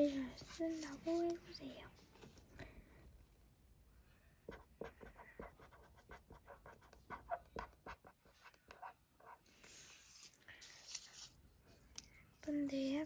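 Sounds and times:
marker pen scratching on paper: 0.0 - 1.3, 4.5 - 11.4.

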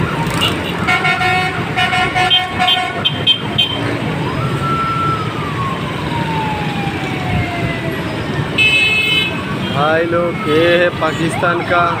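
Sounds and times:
traffic engines rumbling: 0.0 - 12.0
car horns honking: 0.3 - 3.9, 8.6 - 9.9
siren wailing: 3.4 - 12.0.

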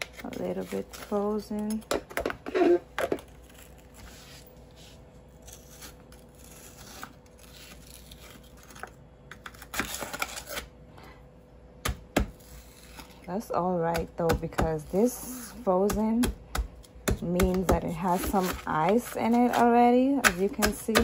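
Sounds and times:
spoon scraping frozen fruit: 17.4 - 21.0.

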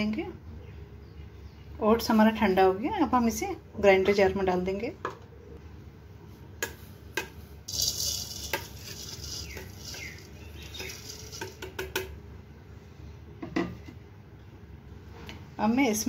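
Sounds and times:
oats pouring into plastic jar: 7.7 - 11.7
steel spoon scraping steel bowl: 7.7 - 11.8.

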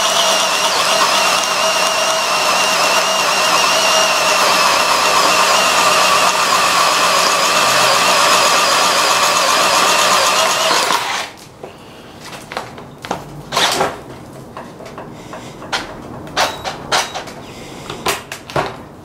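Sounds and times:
cordless drill boring into wood: 0.0 - 11.4.

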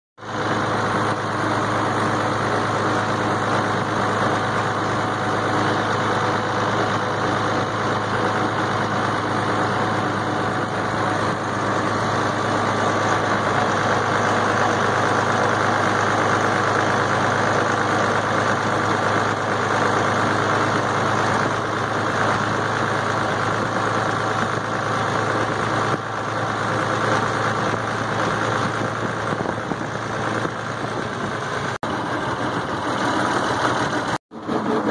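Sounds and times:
tractor engine running: 0.2 - 34.9.

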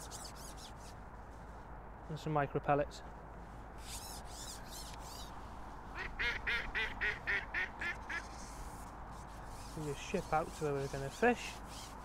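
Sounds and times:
duck quacking: 6.0 - 8.3.

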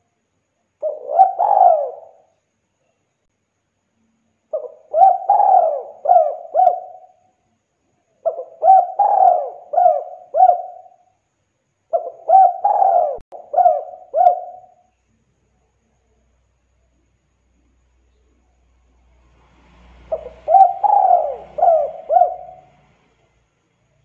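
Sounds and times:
dove cooing: 0.8 - 2.3, 4.5 - 7.2, 8.2 - 11.0, 11.9 - 14.8, 20.0 - 23.1.

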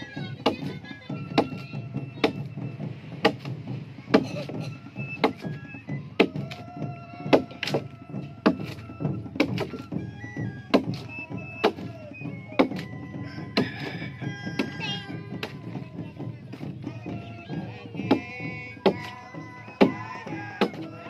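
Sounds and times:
machete chopping wood: 3.2 - 3.5, 9.4 - 9.8.

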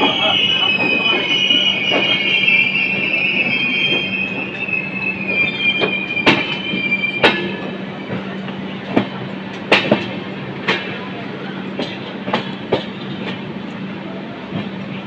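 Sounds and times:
train wheels screeching: 0.0 - 8.9
wheels clacking over rail joints: 8.9 - 11.0.

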